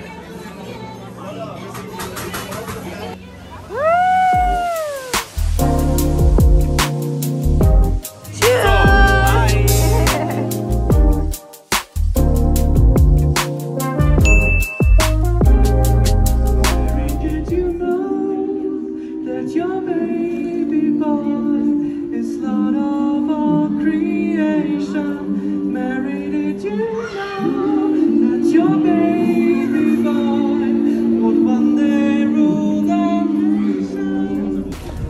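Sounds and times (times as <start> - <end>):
men singing through loudspeakers: 8.3 - 10.0, 17.1 - 34.9.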